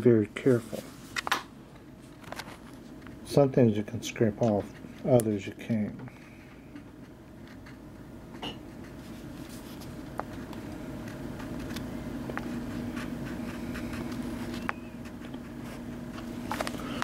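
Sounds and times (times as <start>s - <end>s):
low steady hum: 0.0s - 17.0s
crayon rubbing on paper: 12.4s - 15.9s.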